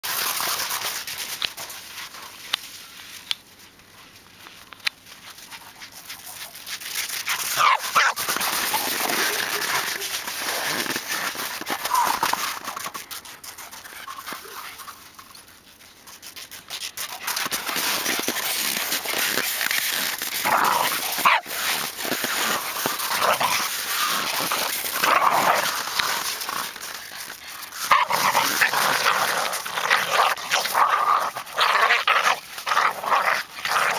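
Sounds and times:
dogs barking and yipping: 0:05.4 - 0:10.9, 0:20.4 - 0:33.9.

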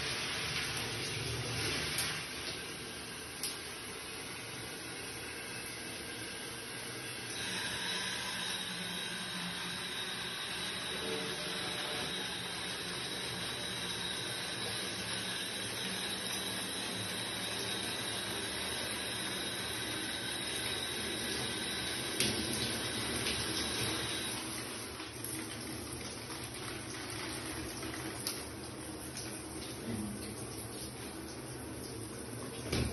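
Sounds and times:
shower water running: 0:00.0 - 0:32.9
faint high whine: 0:05.1 - 0:24.4.

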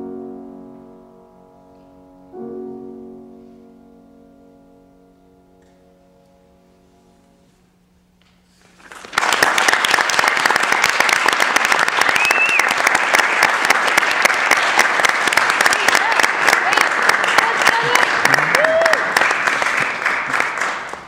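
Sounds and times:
piano chord: 0:00.0 - 0:08.2
audience applause: 0:08.7 - 0:21.0.

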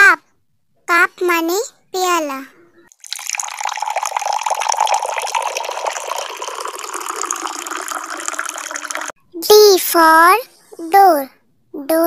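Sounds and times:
coffee pouring into cup: 0:03.0 - 0:09.1.

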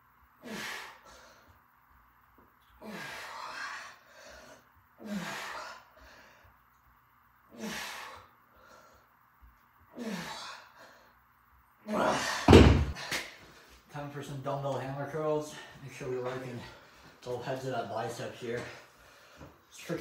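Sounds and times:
man exhaling forcefully: 0:00.4 - 0:01.3, 0:02.8 - 0:05.8, 0:07.5 - 0:08.3, 0:10.0 - 0:10.7
man grunting: 0:11.8 - 0:12.5.

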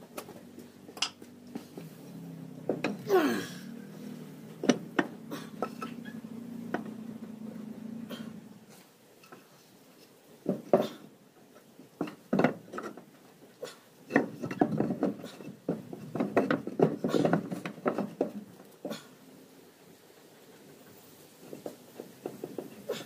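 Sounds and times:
hands knocking and scraping wood: 0:04.5 - 0:06.0, 0:10.4 - 0:11.0, 0:12.0 - 0:13.0, 0:14.1 - 0:19.0, 0:21.5 - 0:23.0.

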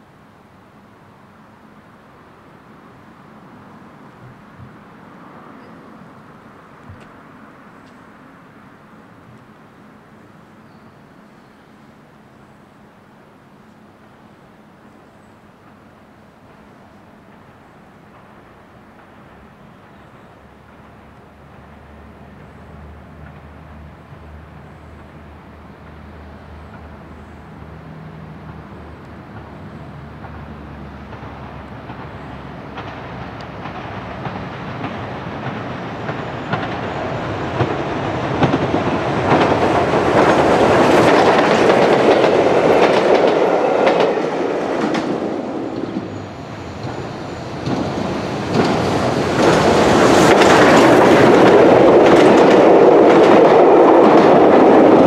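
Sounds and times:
steam locomotive passing: 0:00.0 - 0:55.0
train wheels clattering over rail joints: 0:28.4 - 0:55.0.

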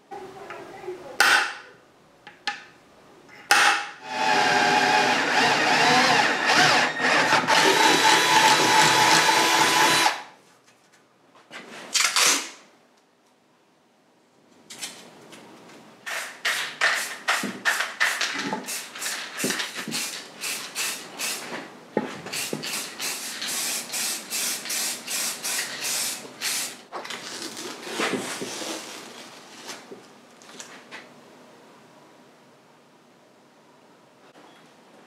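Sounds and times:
spray can hissing bursts: 0:19.9 - 0:21.4, 0:22.3 - 0:26.8.

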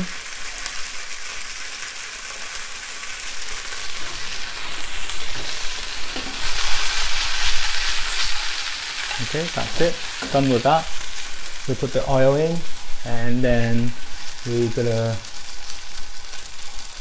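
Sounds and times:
prawns sizzling in a frying pan: 0:00.0 - 0:17.0.

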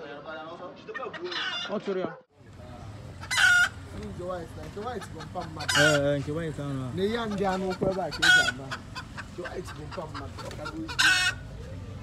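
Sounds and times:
rooster squawking: 0:01.0 - 0:01.8, 0:03.2 - 0:03.9, 0:05.0 - 0:06.2, 0:07.2 - 0:11.6.

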